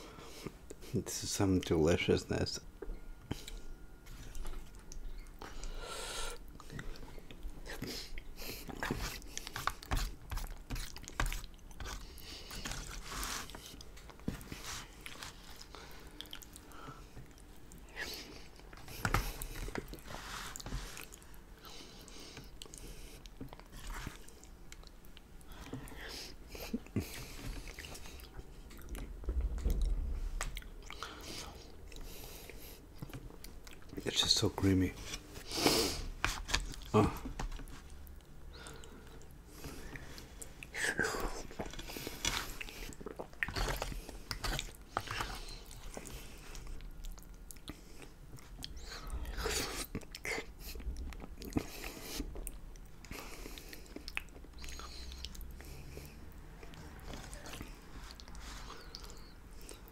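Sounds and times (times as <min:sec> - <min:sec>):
wet chewing: 0:06.5 - 0:34.0, 0:41.4 - 0:59.9.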